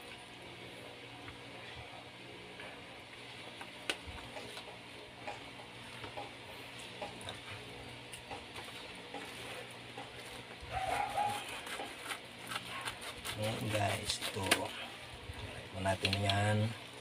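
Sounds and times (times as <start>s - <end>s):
scissors snipping plastic: 11.6s - 14.7s.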